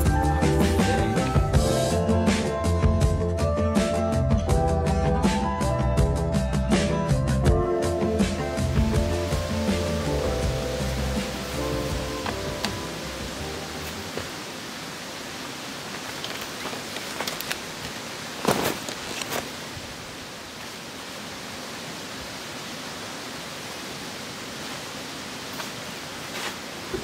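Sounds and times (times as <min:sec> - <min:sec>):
outdoor background hiss: 0:03.8 - 0:27.0
brief rustle: 0:16.1 - 0:19.6.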